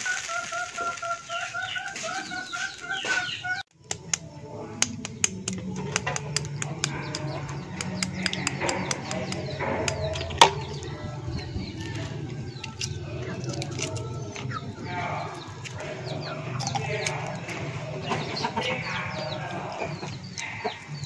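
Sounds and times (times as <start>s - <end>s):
eggshells cracking and clicking: 3.7s - 18.2s.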